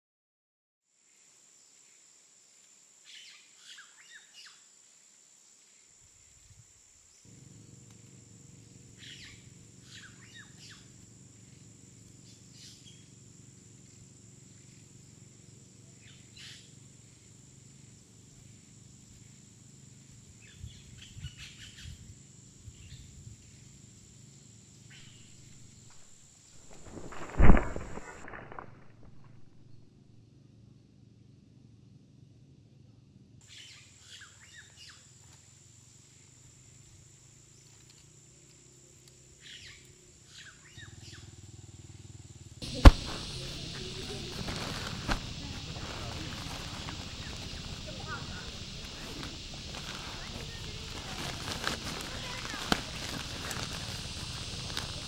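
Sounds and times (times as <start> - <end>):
faint background noise: 32.5 - 55.0
birds chirping: 42.6 - 55.0.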